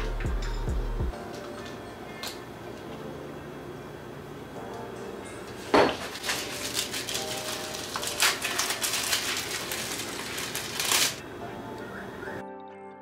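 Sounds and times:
paper label rustling and crinkling: 0:05.7 - 0:11.2.

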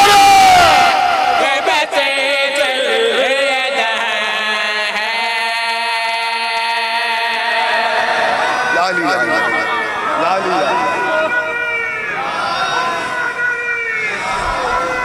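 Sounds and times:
man singing a devotional chant: 0:01.4 - 0:09.6.

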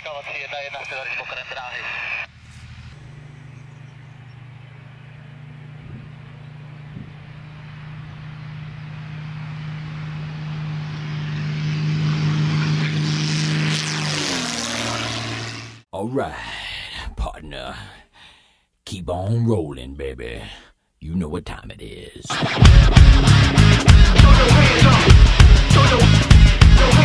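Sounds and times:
propeller plane engine drone: 0:00.8 - 0:15.8.

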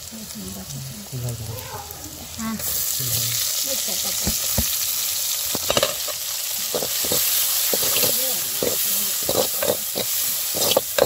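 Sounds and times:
vegetables sizzling in hot oil: 0:00.0 - 0:11.0
steel spoon scraping a pan: 0:05.5 - 0:11.0.

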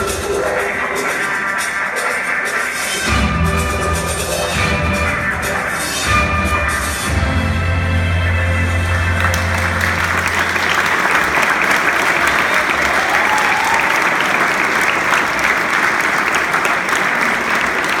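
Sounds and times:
audience applauding: 0:08.8 - 0:18.0.

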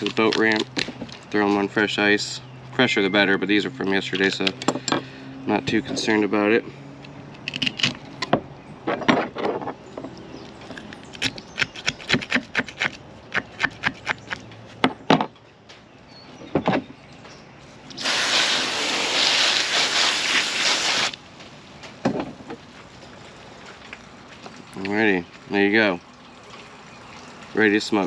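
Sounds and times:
steady rushing hiss: 0:18.0 - 0:21.2.

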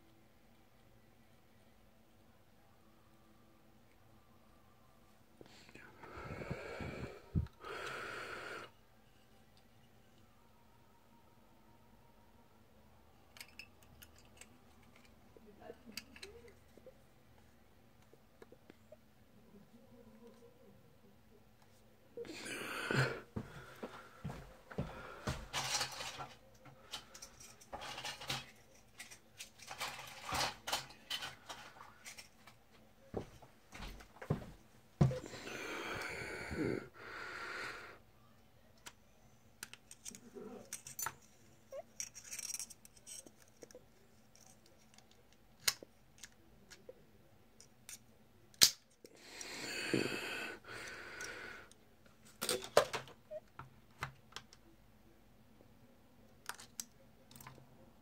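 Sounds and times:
small plastic parts clicking: 0:39.6 - 0:41.3, 0:42.0 - 0:46.9, 0:56.3 - 0:57.6.

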